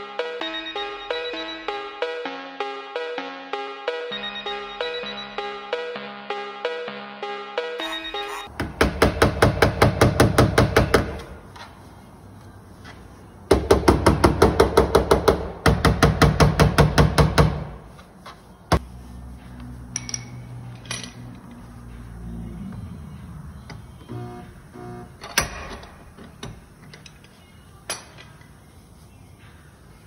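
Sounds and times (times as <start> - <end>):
hammer tapping on sheet metal: 8.6 - 11.3, 13.5 - 17.7.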